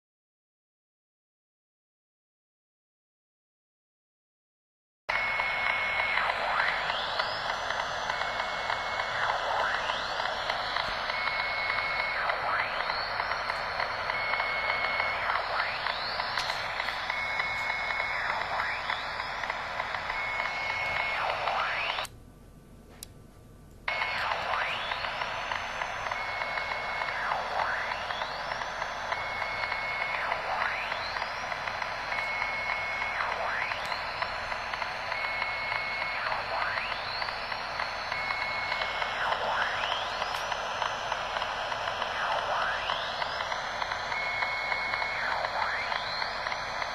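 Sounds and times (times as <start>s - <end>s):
radio static hiss: 5.1s - 22.1s, 23.9s - 46.9s
steady beep: 5.1s - 22.1s, 23.9s - 46.9s
swooping radio whistles: 5.1s - 22.1s, 23.9s - 46.9s.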